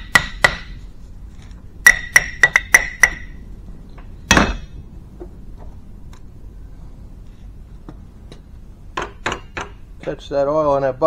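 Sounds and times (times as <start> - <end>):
hammer tapping metal: 0.0 - 0.8, 1.8 - 3.4, 9.0 - 9.8.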